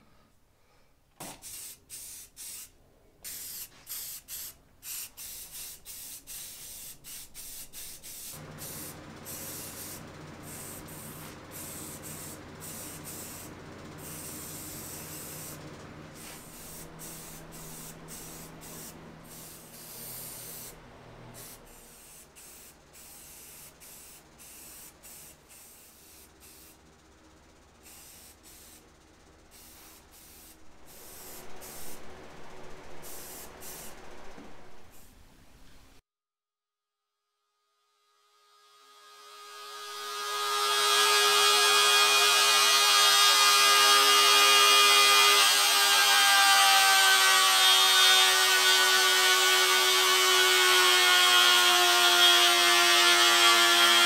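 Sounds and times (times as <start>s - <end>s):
spray paint can hissing: 1.2s - 15.6s, 16.2s - 20.8s, 21.4s - 26.8s, 27.8s - 32.1s, 33.0s - 35.2s
low steady hum: 26.0s - 36.0s.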